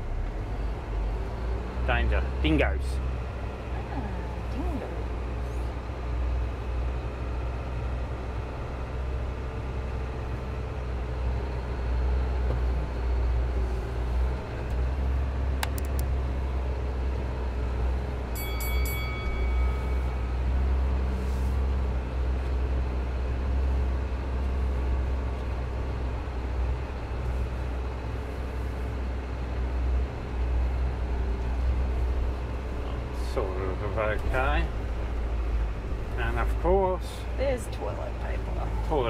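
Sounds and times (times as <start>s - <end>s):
diesel engine running in cab: 0.0s - 39.0s
ringing metallic rattle: 18.4s - 20.5s.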